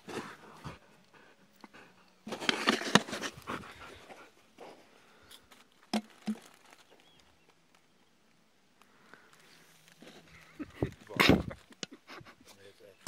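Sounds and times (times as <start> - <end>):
dog panting: 0.1 - 2.2, 3.3 - 4.7.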